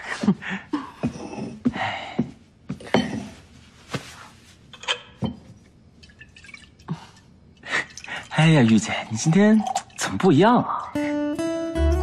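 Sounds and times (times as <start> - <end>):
dishes and tableware clinking: 2.8 - 3.4, 4.7 - 5.6.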